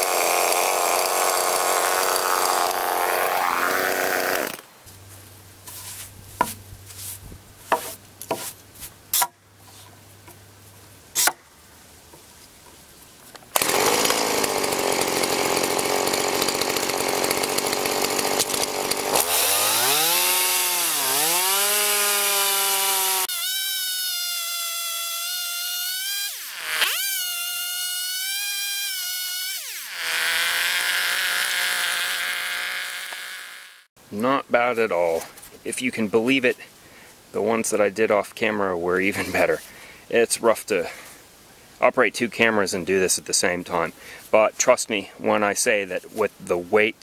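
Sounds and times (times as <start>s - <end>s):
chainsaw cutting log: 0.0s - 4.8s, 5.7s - 6.6s, 7.7s - 9.3s, 11.2s - 11.4s, 13.5s - 33.9s.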